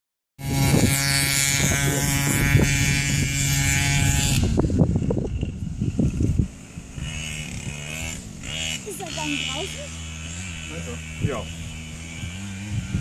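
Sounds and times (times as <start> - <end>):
off-road vehicle engine revving: 0.4 - 13.0.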